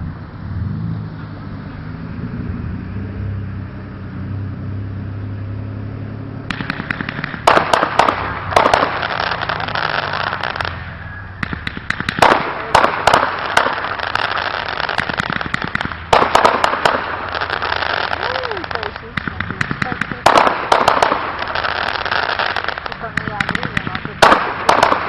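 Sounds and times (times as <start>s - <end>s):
fireworks crackling and popping: 6.5s - 25.0s
loud firework bangs: 6.5s - 25.0s.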